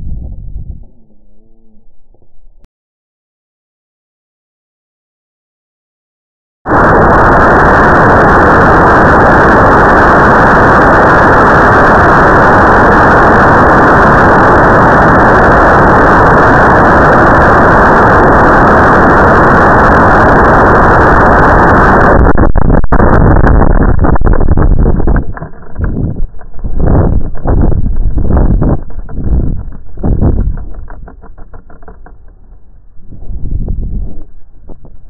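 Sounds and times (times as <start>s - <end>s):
air rushing past microphone: 0.0s - 0.8s, 15.0s - 35.0s
sharp crackles: 6.7s - 35.0s.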